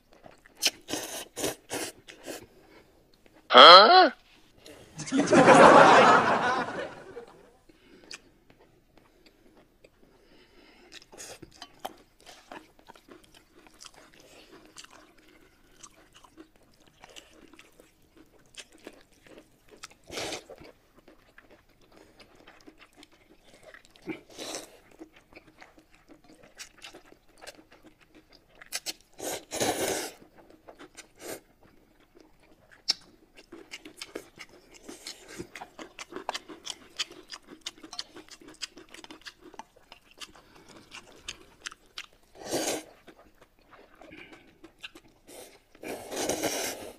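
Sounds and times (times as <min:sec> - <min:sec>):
wet chewing and biting: 0:00.1 - 0:02.3, 0:10.8 - 0:29.2, 0:30.2 - 0:46.5
noodle slurp: 0:42.4 - 0:43.1, 0:45.3 - 0:46.9.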